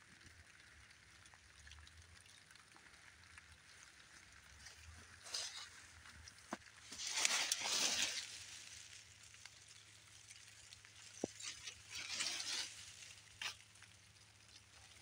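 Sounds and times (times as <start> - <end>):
bushes rustling: 4.1 - 15.0.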